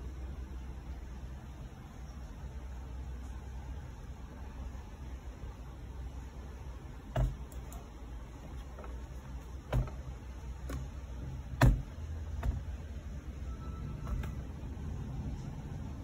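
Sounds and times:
low steady rumble: 0.0 - 16.0
hands handling laptop knocks: 7.1 - 7.6, 9.6 - 10.9, 11.5 - 12.7.

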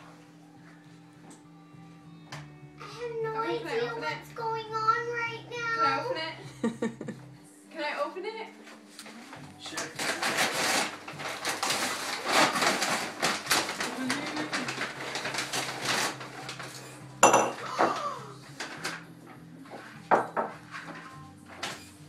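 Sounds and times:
paper bags rustling and crinkling: 8.7 - 22.0.

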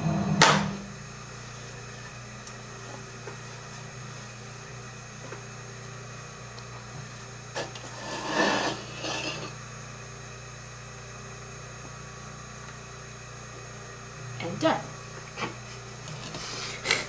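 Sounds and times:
steady low hum: 0.0 - 17.0
rough scraping rub: 7.6 - 9.6.

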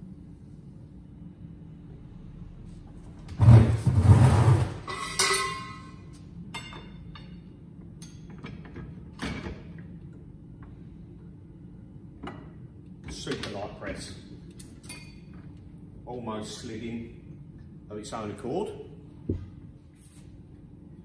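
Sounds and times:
metal bars rattling and scraping: 3.5 - 6.0.

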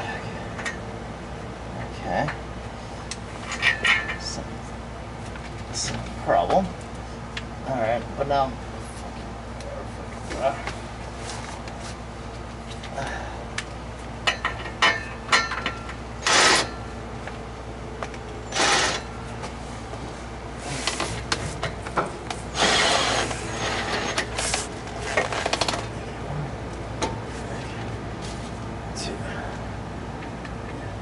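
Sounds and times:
metal clinks and knocks: 14.2 - 16.0
metal parts scraping: 22.5 - 25.6.

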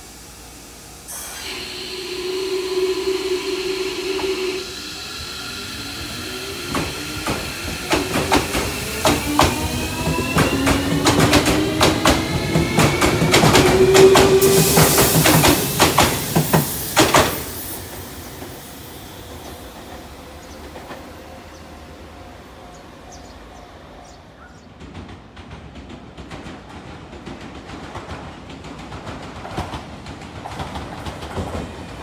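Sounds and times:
electric train motor whine: 0.3 - 18.4.

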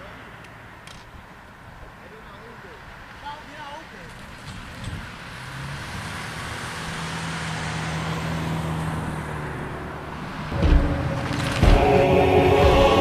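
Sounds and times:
car driving past: 4.2 - 13.0
music: 10.6 - 13.0.

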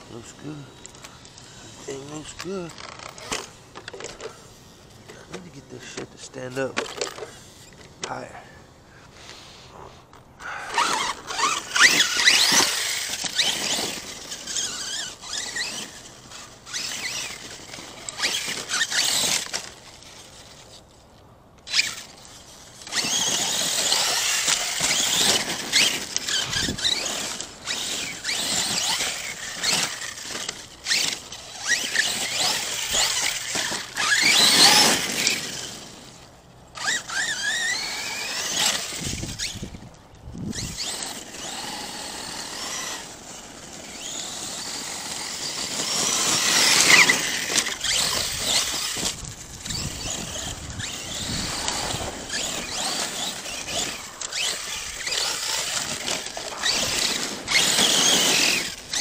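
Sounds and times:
electric motor whining: 0.0 - 6.0, 10.5 - 20.7, 21.6 - 59.0
tyres crunching over gravel: 10.4 - 20.9, 21.7 - 59.0.

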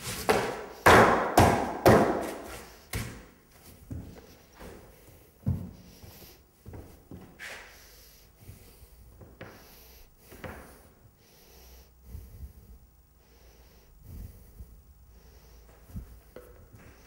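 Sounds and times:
footsteps scuffing on paper: 2.1 - 7.7.

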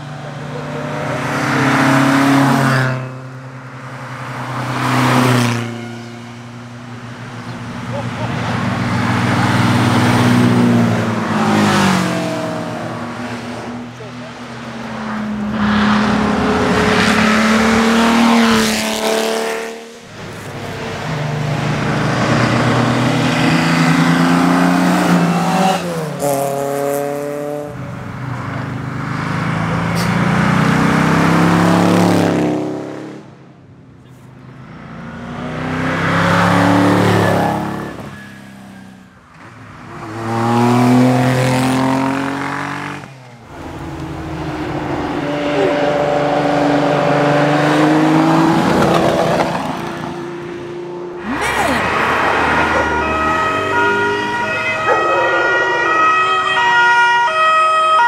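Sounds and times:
race cars accelerating past: 0.0 - 33.4, 34.5 - 56.7.

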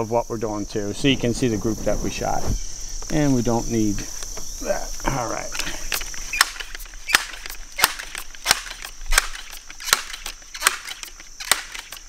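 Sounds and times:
crickets chirring: 0.0 - 12.0
air rifle pump lever clacks: 5.5 - 12.0.

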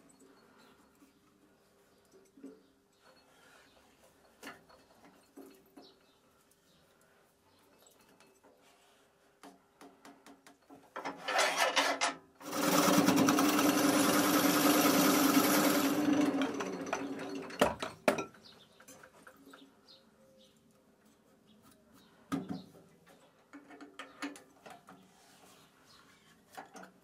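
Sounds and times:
turning tool cutting wood: 11.1 - 17.7
wood lathe hum: 12.4 - 17.6.

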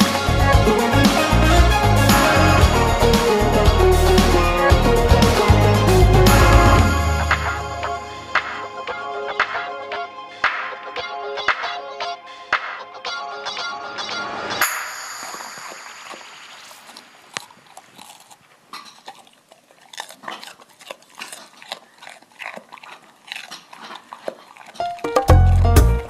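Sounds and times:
loud music with strong beat: 0.0 - 7.5
dog chewing crunchy food: 15.2 - 26.0.

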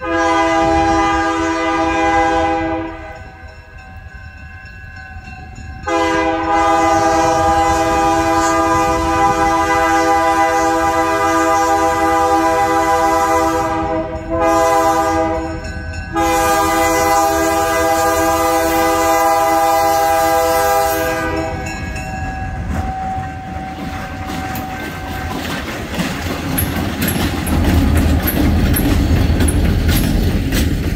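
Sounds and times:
locomotive horn blasts: 0.0 - 3.2, 5.9 - 22.0
locomotive engine rumbling: 0.0 - 30.9
train wheels clicking over rail: 23.6 - 30.9.

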